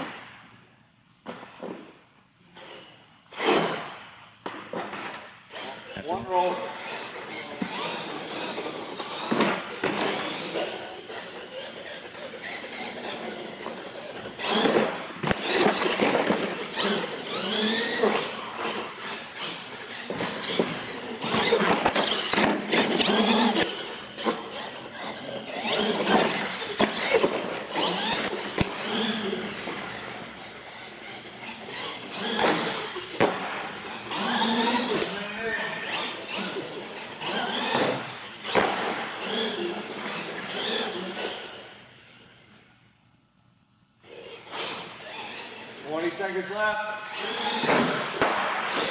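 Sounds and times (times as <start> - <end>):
rc truck motor whining: 4.9 - 42.6, 44.0 - 46.2, 47.0 - 48.9
tire squeals: 6.7 - 33.1, 33.8 - 41.4.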